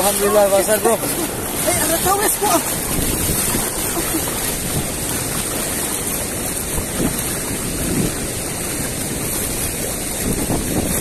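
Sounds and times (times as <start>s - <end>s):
river water rushing over stones: 0.0s - 11.0s.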